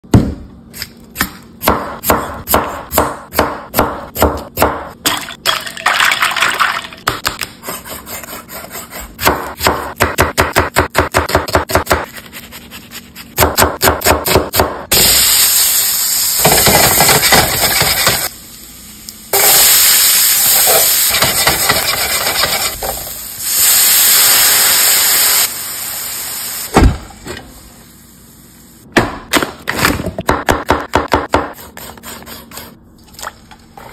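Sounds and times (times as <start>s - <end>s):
knife chopping on wooden board: 0.1s - 4.9s, 7.1s - 12.4s, 13.4s - 14.8s, 29.0s - 32.7s
food sizzling in a pan: 14.9s - 26.7s.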